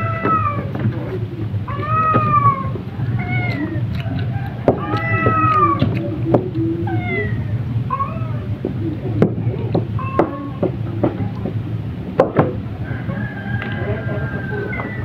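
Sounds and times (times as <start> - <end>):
cat meowing: 0.0 - 0.7, 1.7 - 3.9, 4.8 - 6.0, 6.8 - 8.5, 10.0 - 10.6
steady low hum: 0.0 - 15.0.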